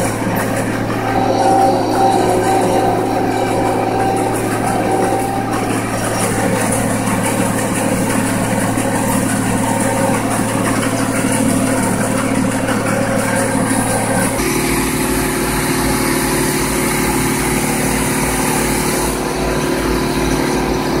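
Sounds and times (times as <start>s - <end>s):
low engine drone inside cab: 0.0s - 21.0s
tractor engine and forage harvester: 0.0s - 21.0s.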